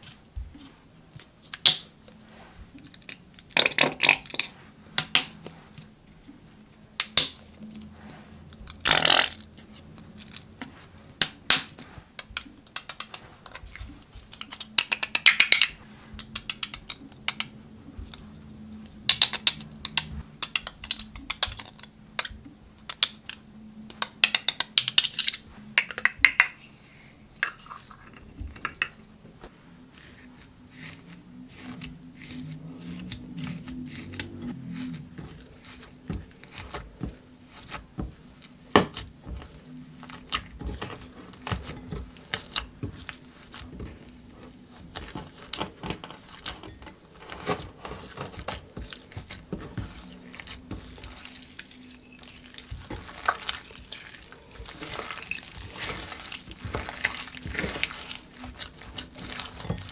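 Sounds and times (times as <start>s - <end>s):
fingers mixing slime: 0.0s - 29.1s, 29.8s - 59.9s
glitter tubes clicking and tapping: 10.3s - 18.3s, 19.0s - 29.0s.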